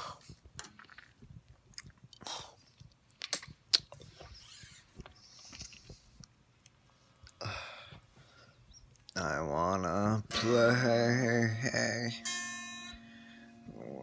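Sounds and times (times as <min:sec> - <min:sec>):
quiet breaths: 0:00.0 - 0:00.6, 0:02.1 - 0:03.0, 0:04.0 - 0:09.1, 0:12.9 - 0:14.0
mouth clicks: 0:00.6 - 0:04.1.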